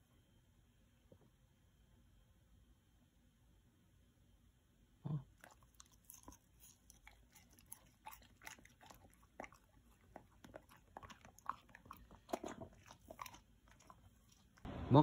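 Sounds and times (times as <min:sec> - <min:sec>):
dog chewing fruit: 0:05.4 - 0:14.7.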